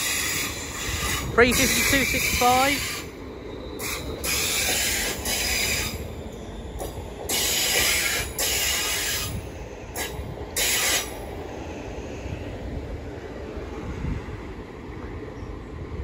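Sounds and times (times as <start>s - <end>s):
train hissing bursts: 0.0s - 3.1s, 3.8s - 6.0s, 7.3s - 9.4s, 10.0s - 11.2s
train rumbling: 0.0s - 16.0s.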